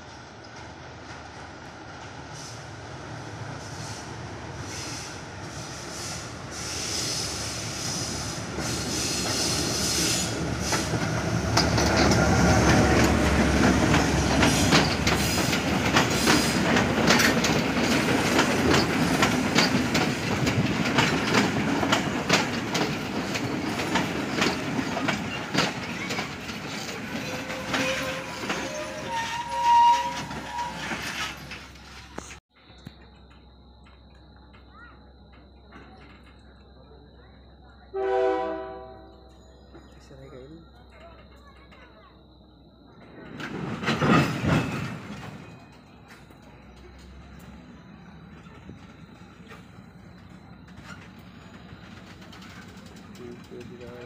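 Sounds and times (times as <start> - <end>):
train passing: 0.0 - 54.0
train brakes squealing: 2.3 - 2.8, 3.6 - 33.4, 43.1 - 54.0
wheels clicking over rail joints: 8.4 - 37.7, 39.2 - 54.0.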